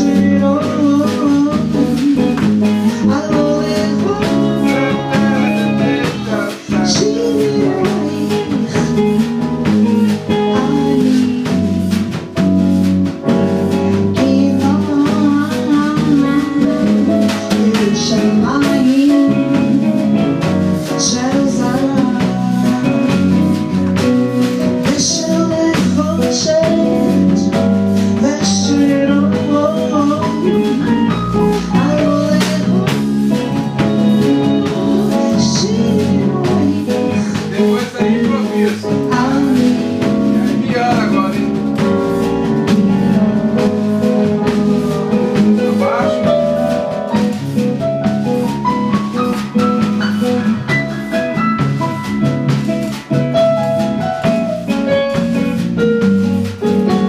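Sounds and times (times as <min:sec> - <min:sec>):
woman singing into a microphone: 0:00.0 - 0:12.2, 0:13.9 - 0:23.8, 0:24.8 - 0:41.0, 0:42.7 - 0:46.4
drum kit: 0:00.0 - 0:57.0
guitar: 0:00.0 - 0:57.0.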